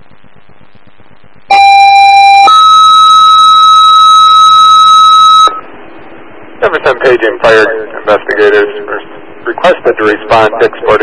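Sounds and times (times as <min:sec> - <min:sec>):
two-tone pager alert over radio: 0:01.5 - 0:05.6.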